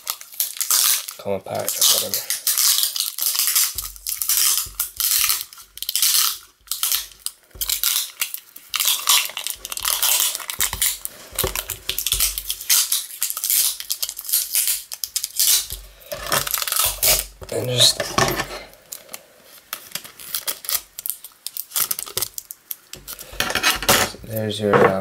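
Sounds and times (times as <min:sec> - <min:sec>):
packing tape ripping off roll: 0:00.0 - 0:17.9, 0:18.7 - 0:24.0.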